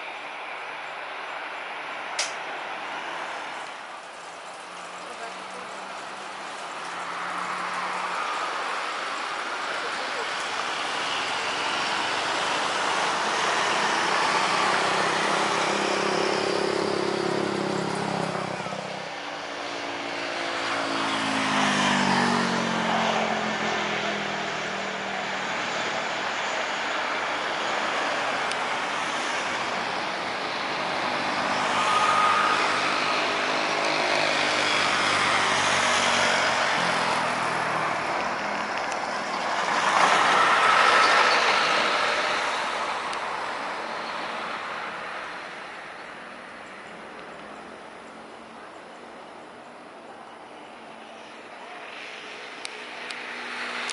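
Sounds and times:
jet engines roaring: 0:00.0 - 0:48.0.

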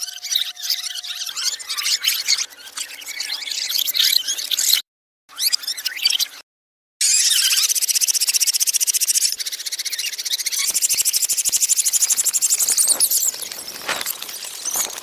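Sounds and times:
insect chorus buzzing: 0:10.7 - 0:15.0.

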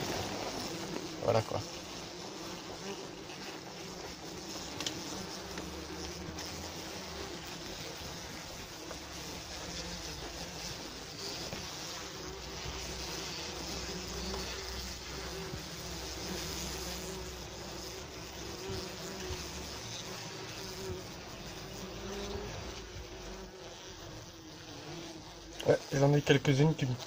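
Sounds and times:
wasps buzzing: 0:00.0 - 0:27.0.

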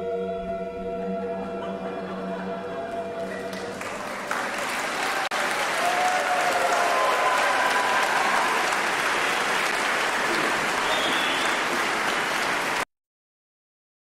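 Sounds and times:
audience applauding: 0:03.3 - 0:12.9.

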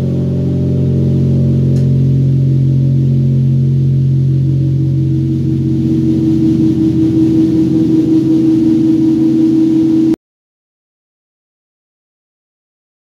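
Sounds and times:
electric bass guitar drone: 0:00.0 - 0:10.2.

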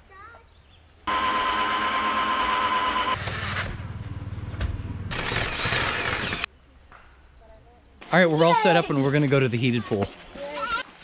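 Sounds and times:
cordless drill whining: 0:01.1 - 0:03.7, 0:05.1 - 0:06.5.

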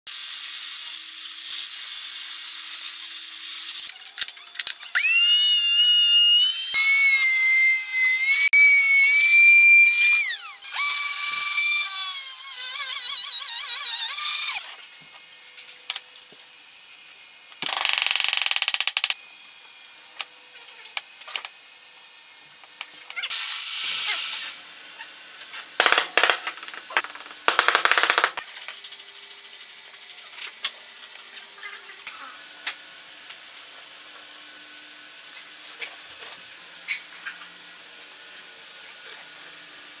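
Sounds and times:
table saw cutting wood: 0:00.1 - 0:03.8, 0:04.9 - 0:14.8
power tool motor whine: 0:01.2 - 0:14.7.

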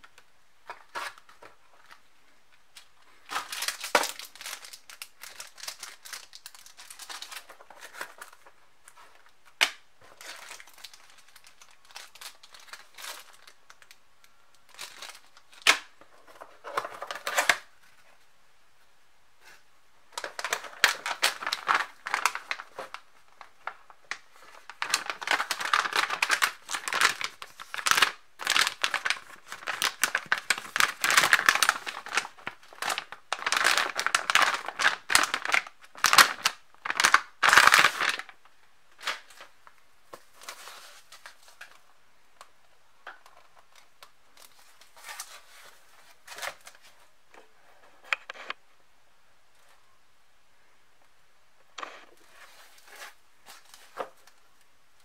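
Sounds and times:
plastic bag crinkling: 0:02.7 - 0:17.7, 0:20.1 - 0:41.8.

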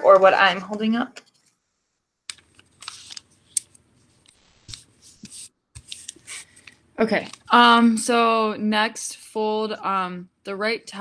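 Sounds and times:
paper rustling and crinkling: 0:02.4 - 0:07.4.

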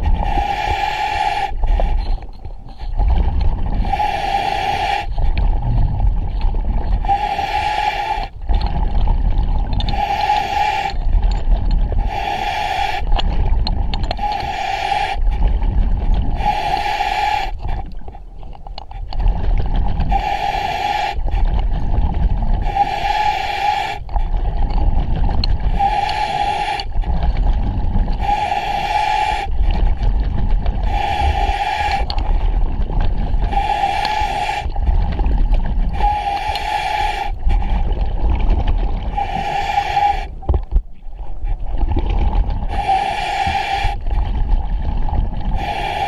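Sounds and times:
exhaled bubbles rumbling: 0:00.0 - 0:46.0
regulator hissing inhale: 0:00.2 - 0:02.2, 0:03.8 - 0:05.3, 0:07.0 - 0:08.3, 0:09.9 - 0:11.0, 0:12.0 - 0:13.1, 0:14.2 - 0:15.3, 0:16.4 - 0:17.8, 0:20.1 - 0:21.5, 0:22.6 - 0:24.0, 0:25.7 - 0:26.9, 0:28.2 - 0:29.8, 0:30.8 - 0:32.1, 0:33.4 - 0:34.8, 0:35.9 - 0:37.8, 0:39.1 - 0:40.4, 0:42.7 - 0:44.1, 0:45.5 - 0:46.0.

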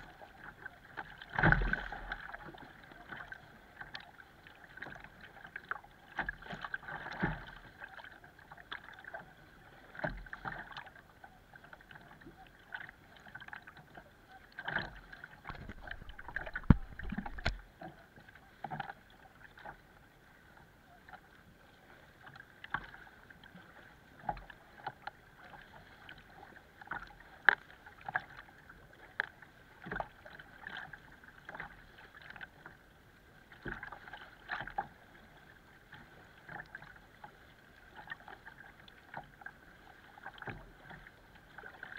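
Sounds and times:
water lapping against kayak hull: 0:00.0 - 0:41.9
water splashes: 0:00.0 - 0:41.9
sharp knocks on hull: 0:15.5 - 0:17.6.

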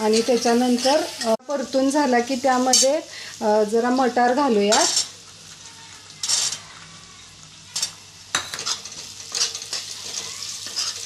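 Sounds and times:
metal utensils scraping pan: 0:00.0 - 0:01.4, 0:04.5 - 0:05.2, 0:06.2 - 0:06.8, 0:07.7 - 0:11.0
peas sizzling in hot oil: 0:00.0 - 0:11.0.

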